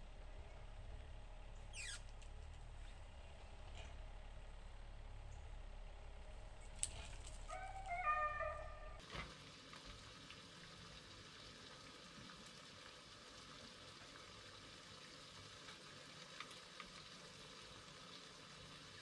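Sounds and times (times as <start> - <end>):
food sizzling on electric grill: 9.0 - 19.0.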